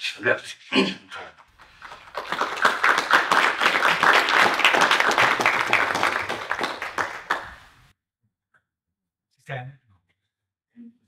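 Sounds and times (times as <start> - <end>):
small audience applauding: 1.5 - 7.9.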